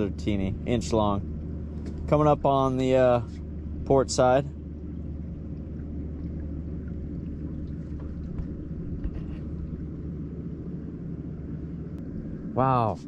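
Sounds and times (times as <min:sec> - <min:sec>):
boat motor humming: 0:00.0 - 0:13.0.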